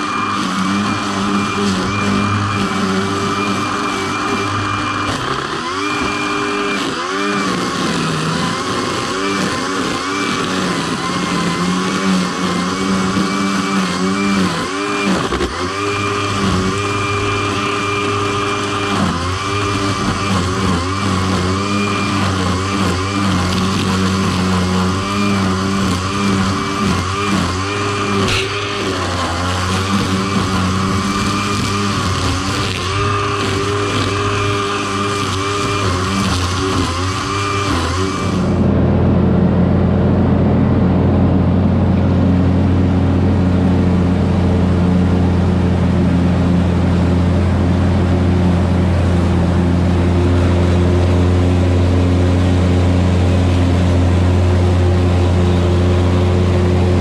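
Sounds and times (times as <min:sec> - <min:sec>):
riding lawn mower engine: 0:00.0 - 0:57.0
steady high whine: 0:36.6 - 0:51.9.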